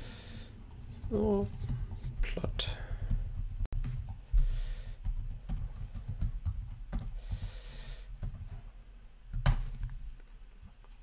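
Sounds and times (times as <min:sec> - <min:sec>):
keyboard typing: 0:00.7 - 0:04.4, 0:05.0 - 0:07.4, 0:09.3 - 0:10.0.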